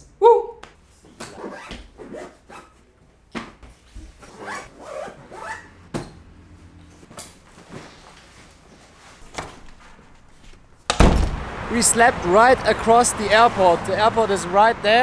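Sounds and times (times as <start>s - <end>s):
zippers being pulled: 1.2s - 2.8s, 4.1s - 5.9s
sharp knocks: 10.9s - 11.5s.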